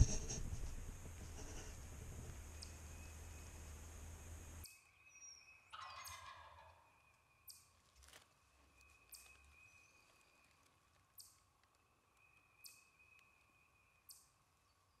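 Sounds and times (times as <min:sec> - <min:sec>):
turkey gobbling: 0:05.7 - 0:06.9.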